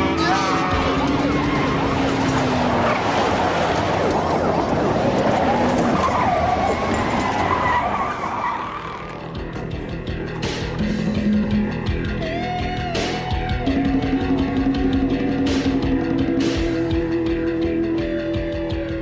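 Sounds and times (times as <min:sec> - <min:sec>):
tyres squealing and spinning: 0:00.0 - 0:09.4
car engine running: 0:00.0 - 0:18.5.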